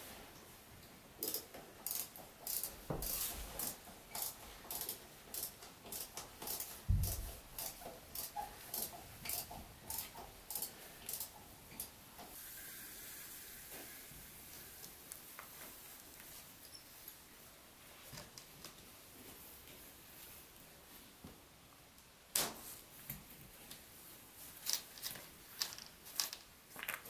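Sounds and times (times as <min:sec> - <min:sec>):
screws clicking into board: 0:01.2 - 0:11.9.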